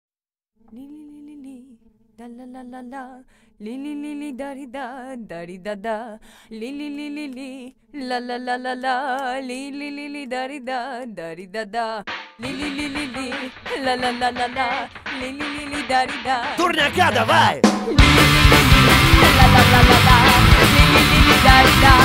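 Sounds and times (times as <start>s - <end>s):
person singing with vibrato: 12.4s - 22.0s.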